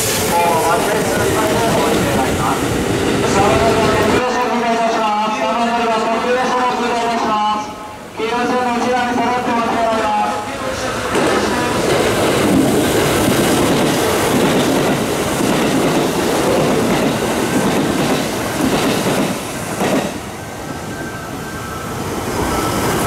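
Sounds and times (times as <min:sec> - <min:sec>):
train passing with clattering wheels: 0:00.0 - 0:23.0.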